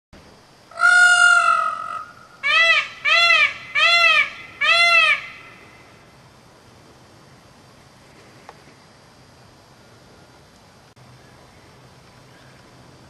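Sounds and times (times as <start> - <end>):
peacock calling: 0.7 - 6.0.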